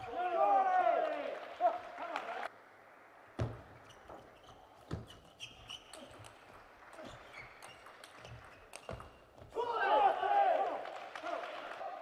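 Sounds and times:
shoes squeaking on floor: 0:03.5 - 0:06.4, 0:07.0 - 0:09.5.

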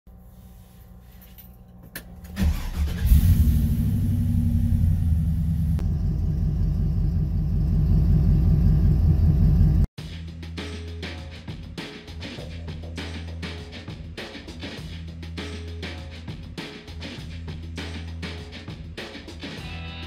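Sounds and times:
engine cranking and idling: 0:02.0 - 0:09.9.

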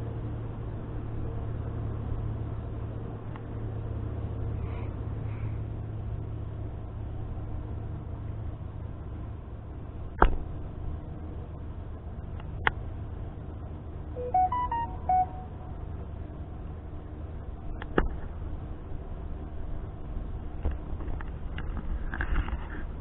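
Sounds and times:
beeping tones stepping in pitch: 0:14.2 - 0:15.8.

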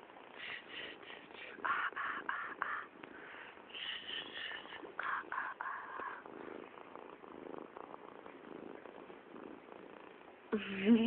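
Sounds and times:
cat purring: 0:00.0 - 0:11.0.

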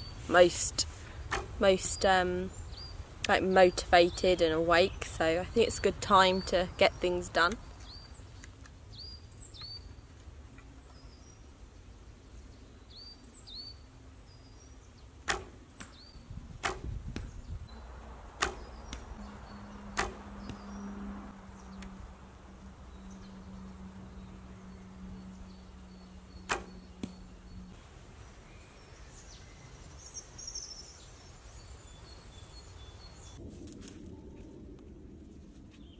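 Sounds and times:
small birds chirping: 0:00.0 - 0:33.4
bow string snapping: 0:01.3 - 0:01.6, 0:15.2 - 0:16.0, 0:16.6 - 0:17.4, 0:18.3 - 0:20.7, 0:21.7 - 0:22.0, 0:26.5 - 0:27.2.

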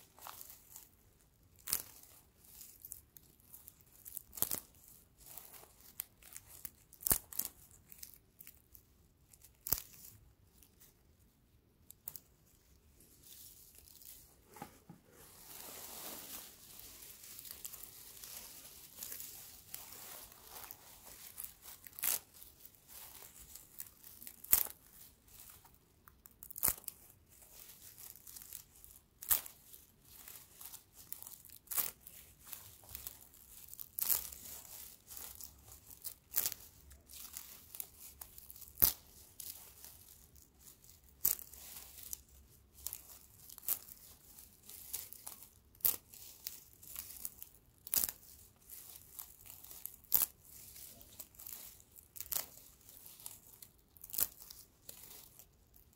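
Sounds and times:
dry grass crackling and rustling: 0:15.4 - 0:25.5.

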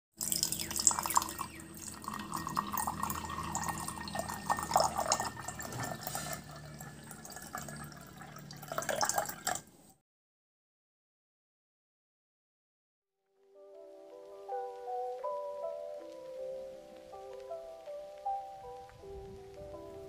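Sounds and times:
water pouring into glass: 0:00.2 - 0:09.7.

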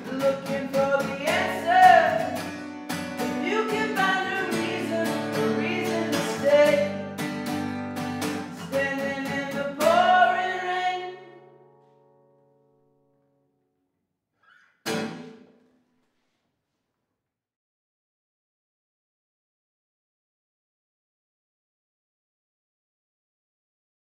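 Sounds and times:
man singing: 0:00.0 - 0:02.5, 0:03.2 - 0:07.2, 0:08.5 - 0:11.4
strummed acoustic guitar: 0:00.0 - 0:12.8, 0:14.5 - 0:15.7.

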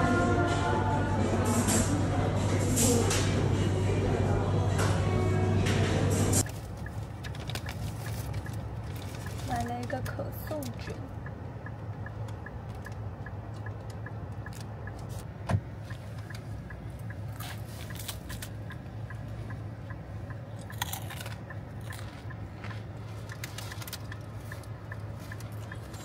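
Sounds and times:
car interior hum: 0:00.0 - 0:26.0
crunchy chewing of croissant: 0:06.4 - 0:09.7, 0:17.2 - 0:18.8, 0:20.6 - 0:26.0
paper bag crinkling: 0:06.4 - 0:09.8.

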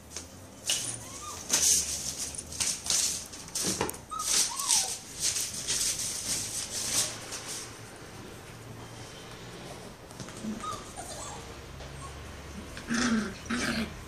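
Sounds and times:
puppy whimpering squeaks: 0:00.9 - 0:01.6, 0:04.1 - 0:05.0, 0:10.4 - 0:12.2.

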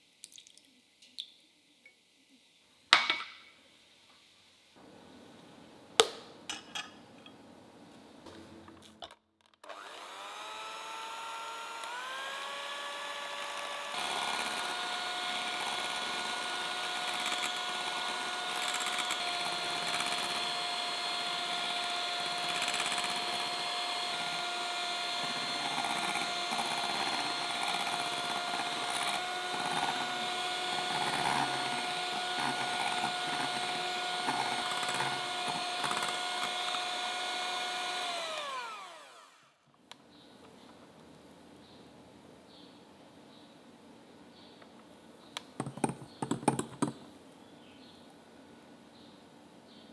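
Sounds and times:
electric hand mixer whining: 0:09.6 - 0:39.6.

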